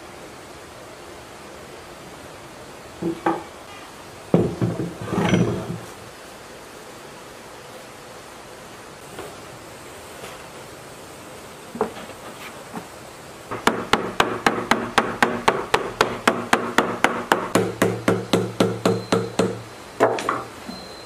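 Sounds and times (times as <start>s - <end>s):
loud knocks: 4.3s - 5.9s, 13.5s - 20.5s
small hammer tapping metal: 13.5s - 20.4s.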